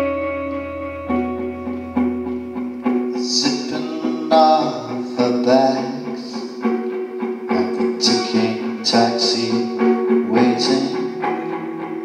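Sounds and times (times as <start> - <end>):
acoustic guitar: 0.0 - 12.0
electric guitar: 0.0 - 12.0
man singing: 3.2 - 6.7, 7.5 - 11.4.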